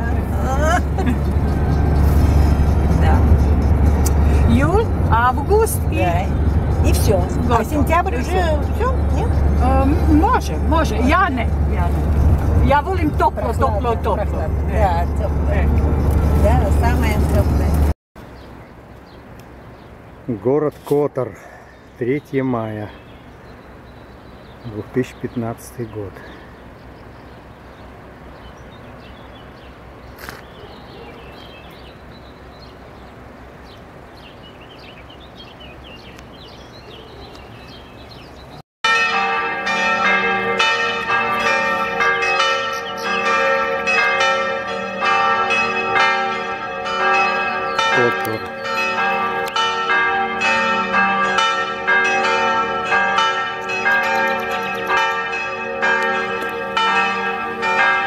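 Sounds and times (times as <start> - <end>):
church bells pealing: 38.9 - 58.0.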